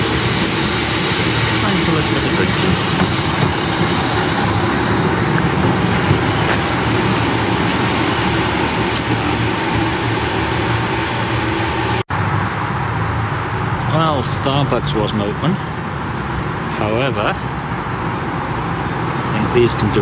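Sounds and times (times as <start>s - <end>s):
diesel railcar engine idling: 0.0s - 12.0s.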